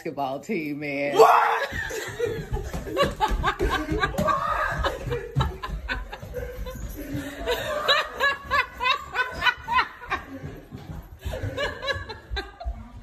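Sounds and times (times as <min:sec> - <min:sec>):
person laughing hard: 0:01.6 - 0:10.5.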